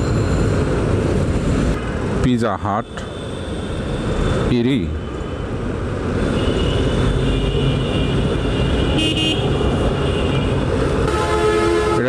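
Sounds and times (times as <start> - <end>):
vehicle horns honking: 6.2 - 12.0.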